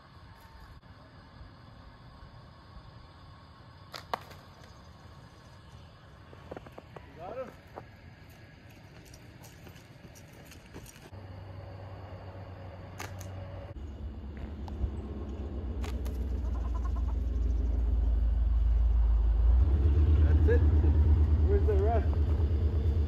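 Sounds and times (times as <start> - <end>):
vehicle engine humming: 4.8 - 23.0.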